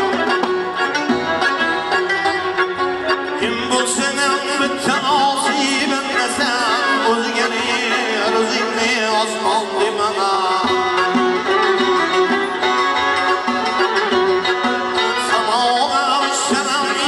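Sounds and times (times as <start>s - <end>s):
bowed fiddle: 0.0s - 17.0s
plucked lute: 0.0s - 17.0s
man singing with vibrato: 3.1s - 12.2s, 14.9s - 17.0s
frame drum: 10.6s - 15.6s.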